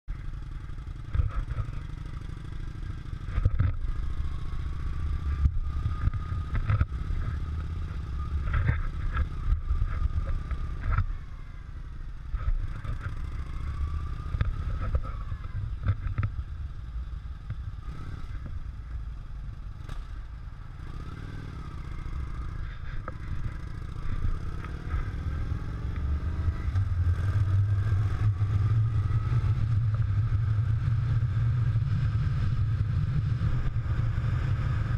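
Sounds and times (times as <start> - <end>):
motorcycle engine running: 0.1 - 34.9
wind rumbling on microphone: 21.2 - 34.9.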